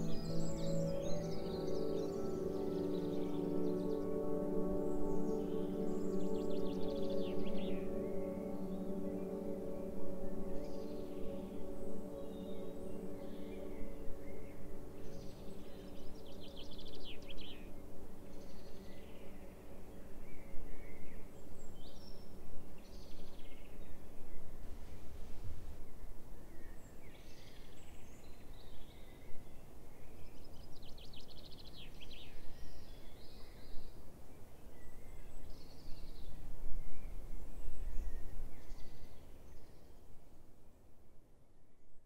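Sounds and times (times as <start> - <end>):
held low chord: 0.0 - 19.8
wild birds singing and calling: 0.0 - 24.0.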